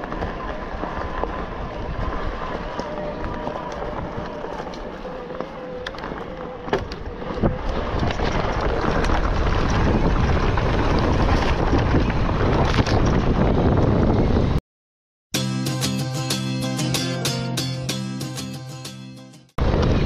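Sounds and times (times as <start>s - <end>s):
tyres crunching over gravel: 0.0s - 13.4s
wind buffeting microphone: 0.0s - 14.6s, 19.6s - 20.0s
clicks and knocks from stones: 2.6s - 13.3s.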